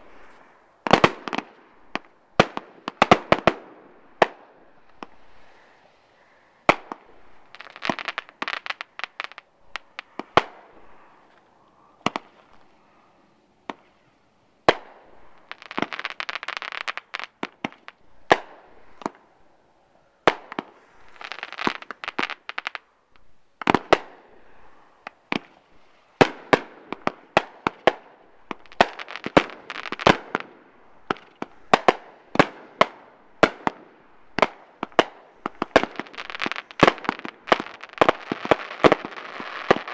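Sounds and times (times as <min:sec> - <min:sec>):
fireworks crackling: 0:00.0 - 0:13.0, 0:13.6 - 0:39.9
fireworks bangs: 0:24.8 - 0:39.9.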